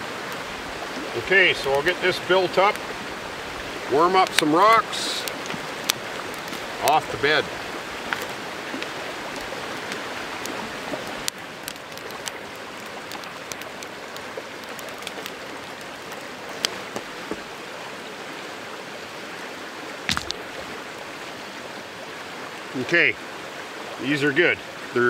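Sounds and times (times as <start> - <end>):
creek water running: 0.0 - 25.0
campfire crackling and popping: 0.1 - 17.6, 20.1 - 21.0
stones knocking: 16.0 - 17.5, 20.1 - 20.5.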